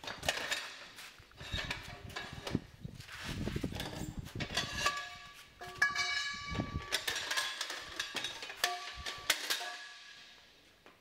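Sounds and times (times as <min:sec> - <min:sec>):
metal pieces falling on concrete: 0:04.6 - 0:10.4.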